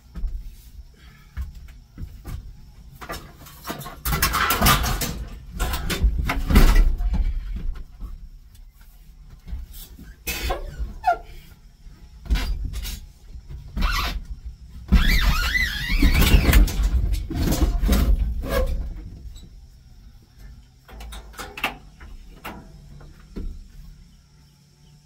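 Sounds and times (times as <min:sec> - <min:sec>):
knocks and bangs on metal: 0:03.1 - 0:07.4
harsh scraping with squeal: 0:14.9 - 0:19.4.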